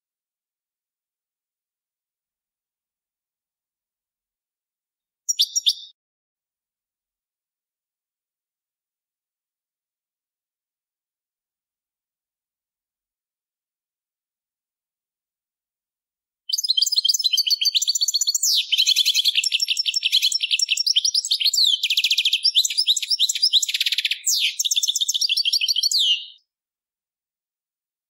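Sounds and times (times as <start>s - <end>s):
bird singing with twittering trills: 5.3s - 5.9s, 16.5s - 26.4s.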